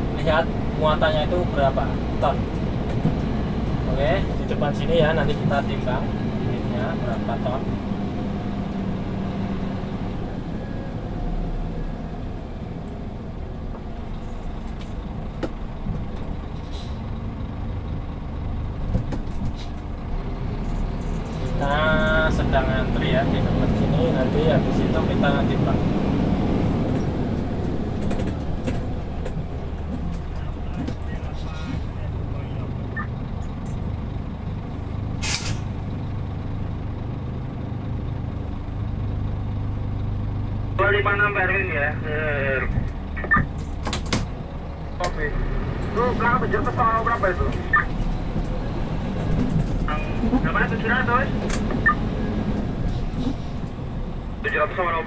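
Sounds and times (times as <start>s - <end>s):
diesel engine running: 0.0s - 55.0s
air brake hiss: 35.2s - 35.8s.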